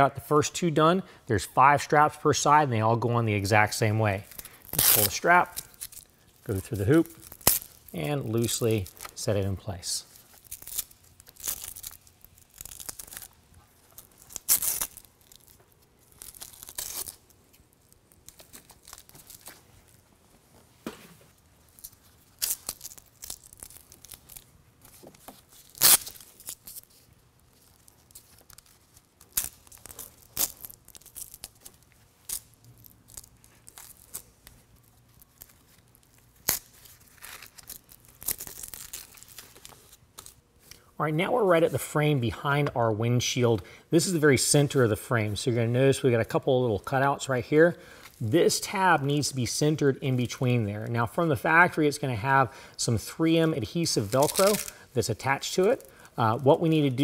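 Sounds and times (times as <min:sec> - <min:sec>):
velcro straps ripping: 0:04.0 - 0:20.0, 0:21.3 - 0:40.8, 0:53.8 - 0:56.2.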